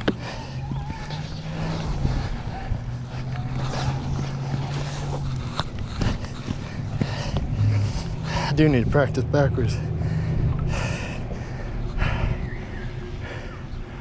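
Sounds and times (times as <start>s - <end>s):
skate wheels rolling on concrete: 0.0s - 8.5s
wind on microphone: 0.9s - 7.0s.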